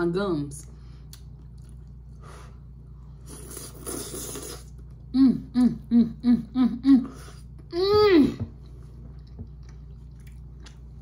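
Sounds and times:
woman slurping noodles: 3.3 - 4.7
woman humming with mouth full: 5.1 - 8.4.

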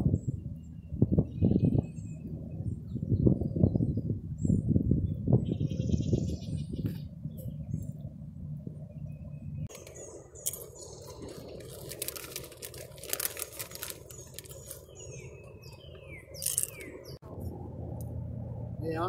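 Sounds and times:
birds chirping: 0.0 - 17.2
aluminium can crinkling: 9.7 - 15.0, 16.4 - 16.9.

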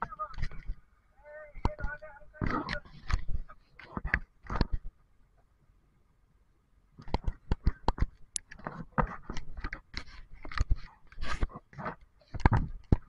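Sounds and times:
sharp clicks and knocks: 1.6 - 4.9, 7.0 - 13.0.

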